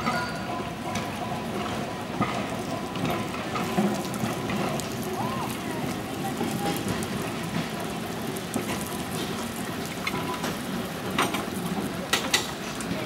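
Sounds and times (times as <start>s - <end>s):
light rain on a wet street: 0.0s - 13.0s.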